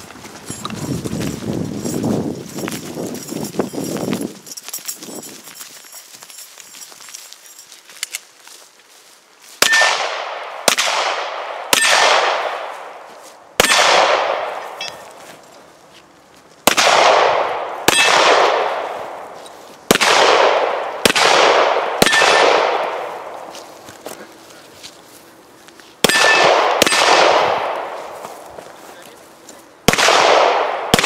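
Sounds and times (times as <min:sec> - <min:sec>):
pistol shots with echo: 0:09.6 - 0:13.0, 0:13.6 - 0:15.0, 0:16.6 - 0:19.3, 0:19.9 - 0:23.5, 0:26.0 - 0:28.2, 0:29.8 - 0:31.0.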